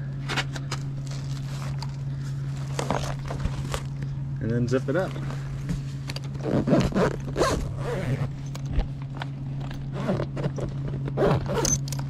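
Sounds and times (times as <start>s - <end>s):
steady low hum: 0.0s - 12.0s
zipper being pulled shut: 6.3s - 8.8s, 9.8s - 12.0s.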